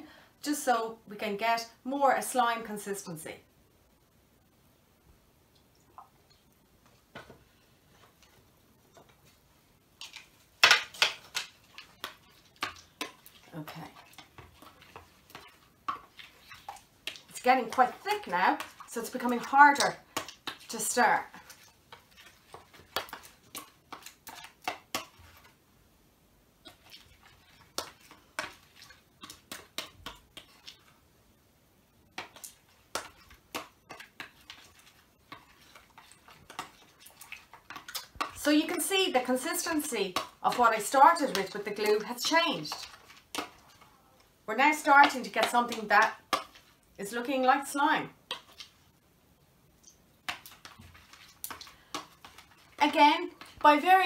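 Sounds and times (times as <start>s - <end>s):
spoon stirring slime in bowl: 6.0s - 25.6s, 26.6s - 31.0s, 32.1s - 48.9s, 49.8s - 54.0s
spoon scraping plastic bowl: 32.2s - 43.9s.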